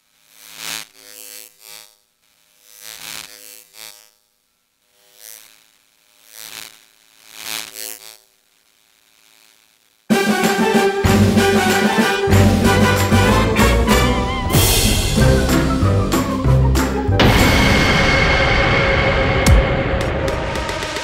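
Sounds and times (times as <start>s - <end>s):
electric buzzing bursts: 0.0s - 16.4s.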